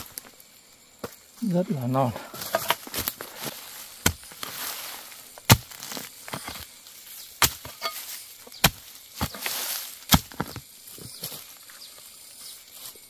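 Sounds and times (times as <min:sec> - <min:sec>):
blade chopping bamboo: 0:04.0 - 0:04.6, 0:05.4 - 0:06.6, 0:07.4 - 0:10.6.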